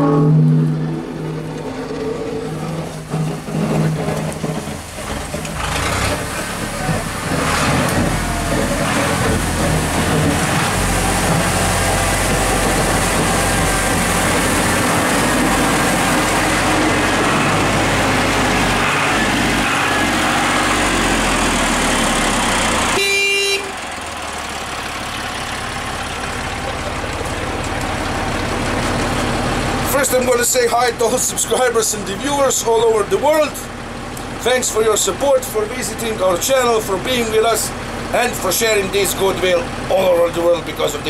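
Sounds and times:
tractor engine running: 0:00.0 - 0:41.0
short horn toot: 0:23.0 - 0:23.8.

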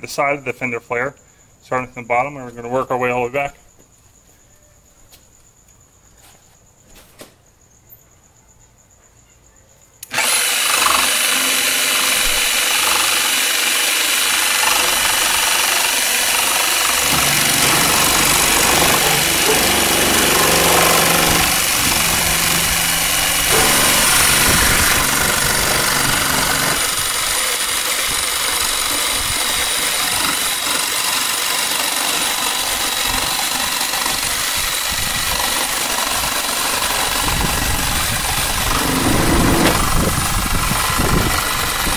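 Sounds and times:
jigsaw cutting plastic: 0:10.0 - 0:41.9.

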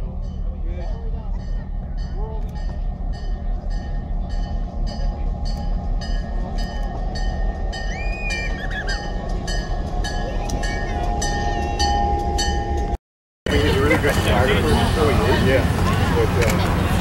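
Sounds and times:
locomotive engine rumble: 0:00.0 - 0:17.0
rhythmic clicking of train wheels: 0:00.0 - 0:17.0.

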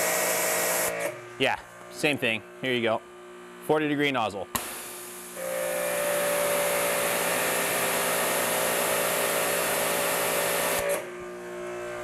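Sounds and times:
pressure washer spraying: 0:00.0 - 0:01.1, 0:04.6 - 0:11.0
pressure washer humming: 0:00.0 - 0:02.2, 0:04.5 - 0:11.2.

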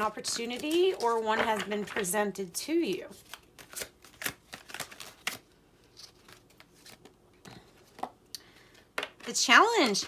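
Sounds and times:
cards being shuffled: 0:00.0 - 0:02.2, 0:02.8 - 0:07.2.

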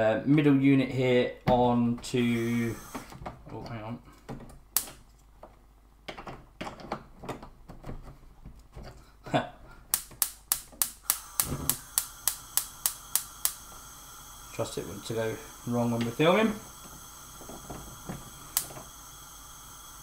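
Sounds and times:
gas hob spark igniter clicking: 0:04.8 - 0:05.0, 0:09.9 - 0:20.0.

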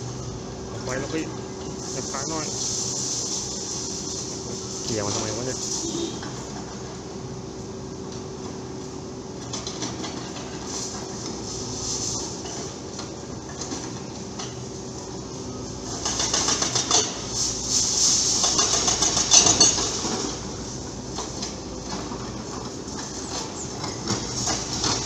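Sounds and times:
excavator engine running: 0:00.0 - 0:25.0
hydraulic breaker hammering concrete: 0:16.0 - 0:17.2.

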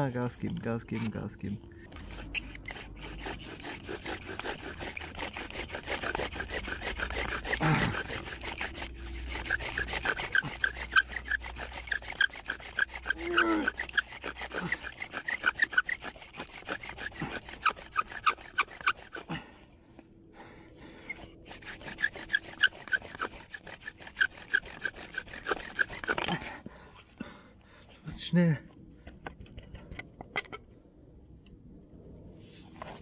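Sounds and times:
bow drill spindle squeaking: 0:01.9 - 0:19.2, 0:21.1 - 0:26.3.

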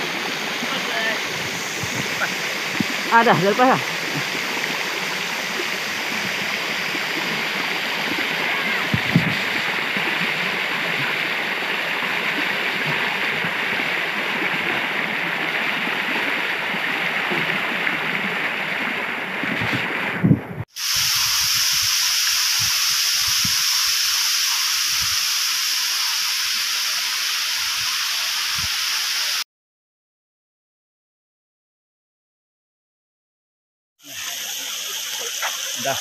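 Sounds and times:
steady hiss: 0:00.0 - 0:11.6, 0:20.7 - 0:29.4, 0:34.0 - 0:36.0
waterfall water splashing: 0:00.0 - 0:20.1, 0:20.8 - 0:29.4, 0:34.0 - 0:36.0.

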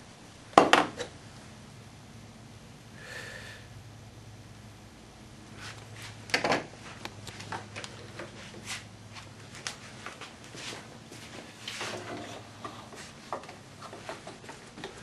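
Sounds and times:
low steady hum: 0:00.0 - 0:15.0
tool knocking on wooden bench: 0:00.6 - 0:01.0.

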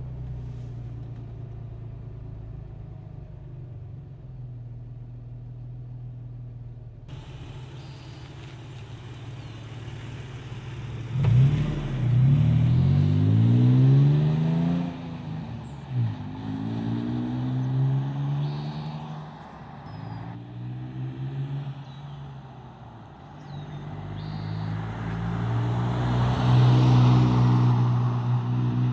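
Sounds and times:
pickup truck engine idling: 0:06.8 - 0:11.1
truck accelerating past: 0:07.1 - 0:22.1, 0:23.4 - 0:28.9.

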